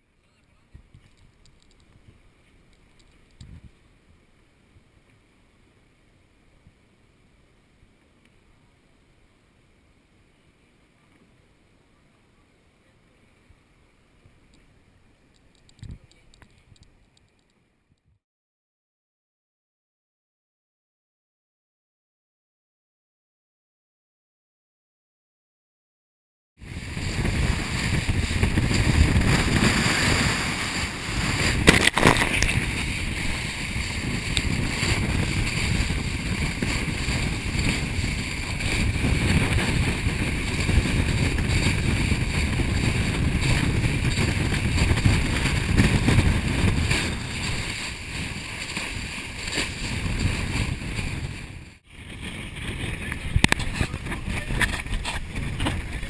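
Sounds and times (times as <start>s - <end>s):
wind buffeting microphone: 3.3s - 3.8s, 26.6s - 56.0s
rushing water: 26.6s - 53.0s.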